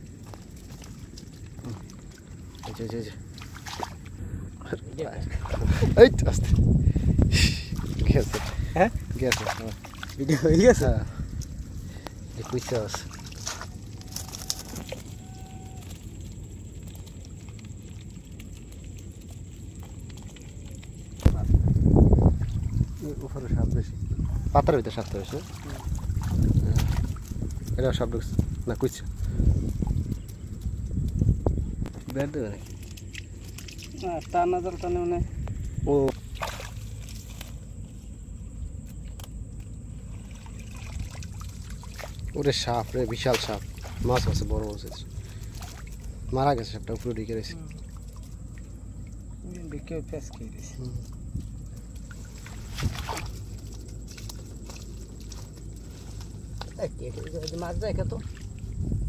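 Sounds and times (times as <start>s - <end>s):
fish flicking in a basket: 0.0s - 4.2s, 7.7s - 23.3s, 24.3s - 58.8s
low steady rumble: 0.0s - 59.0s
bamboo trap clicks and rustles: 13.4s - 15.8s.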